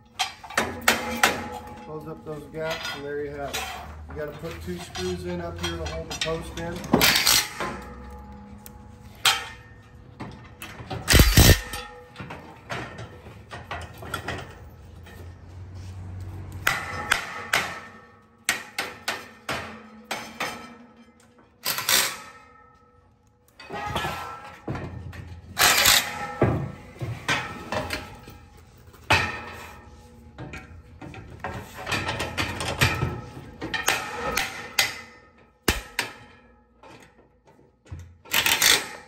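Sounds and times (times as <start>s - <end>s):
metal parts clanking on wooden bench: 0.0s - 15.3s, 23.5s - 39.0s.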